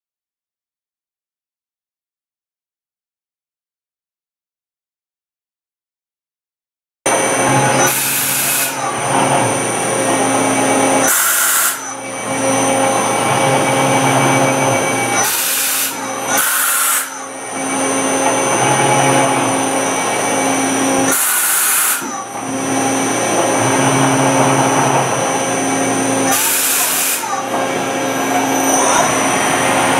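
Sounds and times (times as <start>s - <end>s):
lathe motor hum and whine: 7.1s - 29.9s.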